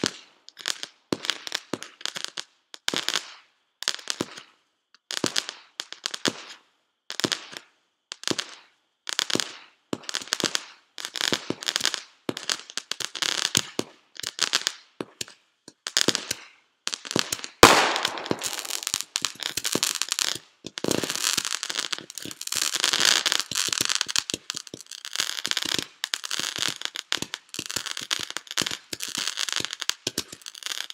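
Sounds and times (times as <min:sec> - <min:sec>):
fireworks popping: 0:00.0 - 0:06.6, 0:08.2 - 0:30.9
firework crackling: 0:08.2 - 0:30.9
firework bang: 0:17.6 - 0:19.2.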